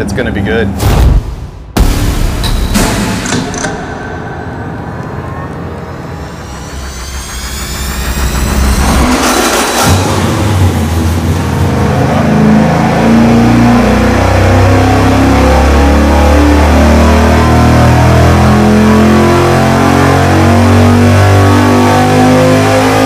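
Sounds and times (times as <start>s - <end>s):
engine revving at full throttle: 6.2s - 23.0s.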